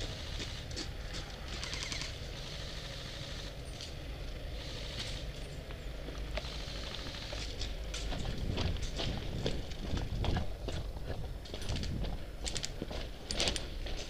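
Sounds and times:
footsteps on gravel: 5.7s - 14.0s
wind rumbling on microphone: 8.0s - 14.0s.

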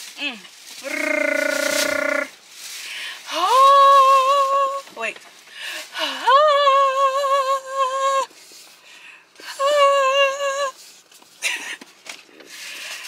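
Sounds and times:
woman singing high wavering notes: 3.3s - 4.9s, 6.0s - 8.3s, 9.5s - 10.8s.

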